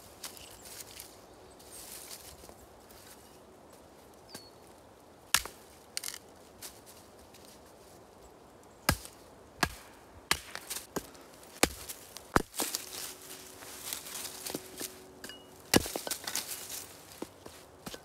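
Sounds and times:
hatchet chopping wood: 5.3 - 6.2, 8.9 - 12.8, 15.2 - 16.5.

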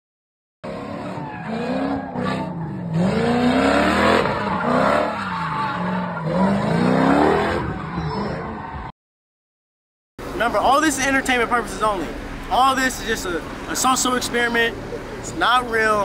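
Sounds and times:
car engine revving: 0.6 - 8.8
tyres squealing on asphalt: 0.7 - 8.9, 10.2 - 16.0.

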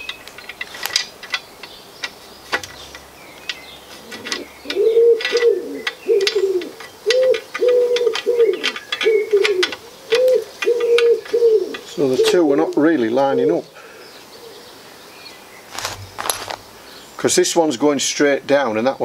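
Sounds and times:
metal chair frame clicks: 0.0 - 12.4
pigeon cooing: 3.9 - 14.8.

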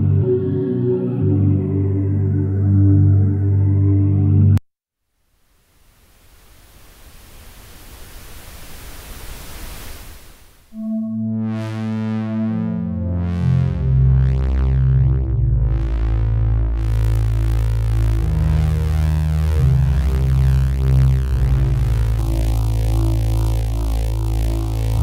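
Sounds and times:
dark ambient synth chords: 0.0 - 4.6, 10.7 - 25.0
filtered synth noise wash: 5.2 - 25.0.

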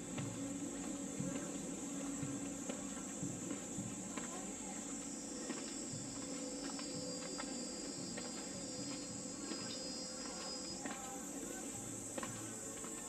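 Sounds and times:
high-pitched insect drone: 3.0 - 13.0.

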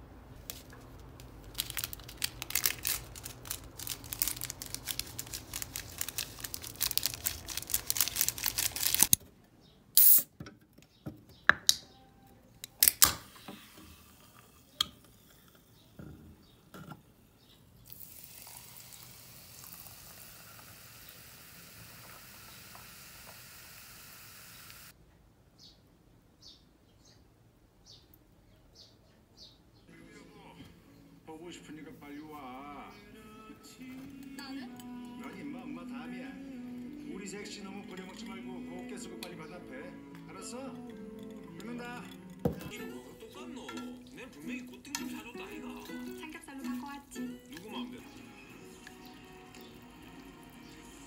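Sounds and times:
drink can opening: 10.0 - 10.3, 12.6 - 13.8
steady fizz: 13.4 - 15.5, 17.9 - 24.9
food sizzling in a pan: 17.9 - 24.9.

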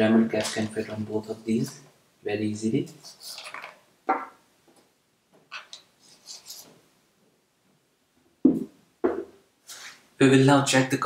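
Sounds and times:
tool knocking on workbench: 8.5 - 9.4.

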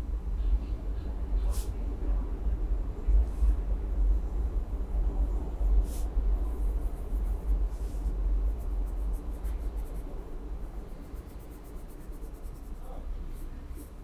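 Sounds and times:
low rumble: 0.0 - 11.6
pencil scratching on paper: 5.8 - 14.0.

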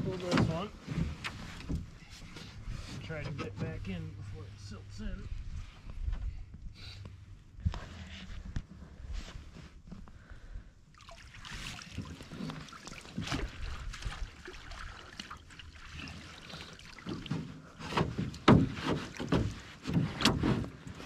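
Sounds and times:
water splashing and dripping: 10.9 - 19.7.

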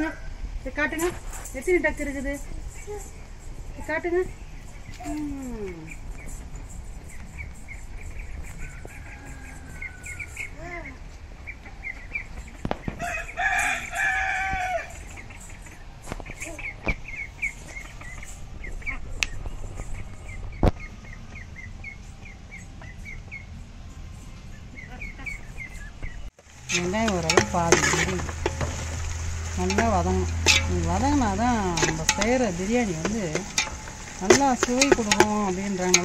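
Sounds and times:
small birds chirping: 0.7 - 36.0
rooster crowing: 8.6 - 10.5, 13.0 - 15.0.

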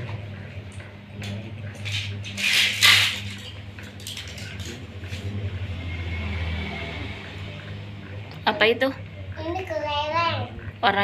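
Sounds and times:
steady low hum: 0.0 - 11.0
plastic toys clattering on tiles: 1.8 - 4.8.

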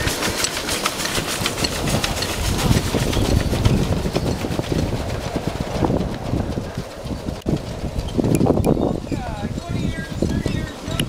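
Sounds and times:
steam hissing: 0.0 - 4.5
wheels rumbling on rails: 0.0 - 11.0.

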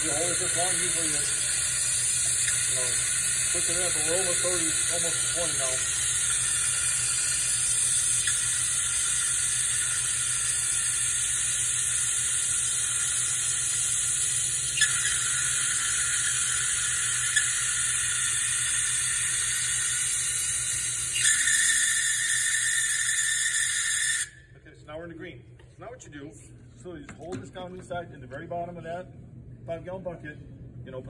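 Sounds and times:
compressed air hissing: 0.0 - 24.3.

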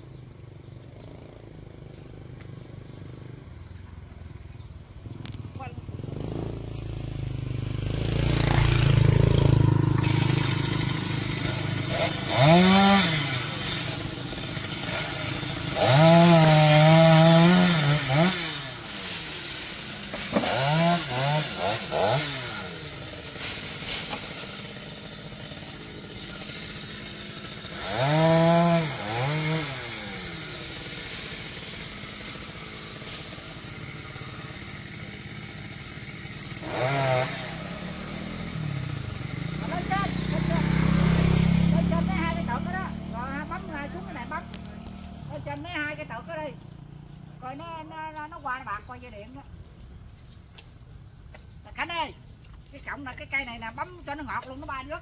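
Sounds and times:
chainsaw revving: 5.2 - 46.4
vehicle passing: 39.9 - 45.4.

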